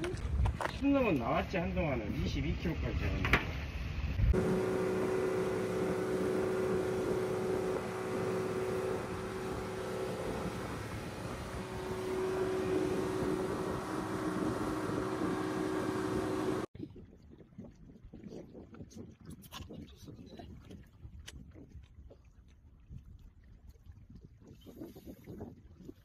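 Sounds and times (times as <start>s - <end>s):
boat engine droning: 4.3s - 16.7s
water rushing from wake: 4.3s - 16.7s.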